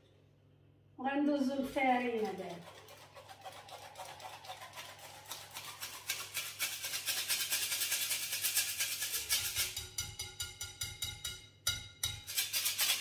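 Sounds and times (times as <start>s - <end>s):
flour sifter scraping: 1.8s - 9.8s, 12.3s - 13.0s.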